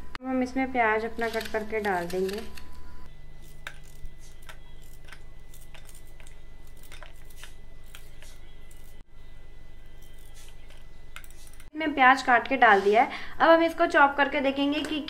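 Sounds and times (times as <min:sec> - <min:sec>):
knife cutting through onion: 0:10.0 - 0:11.7.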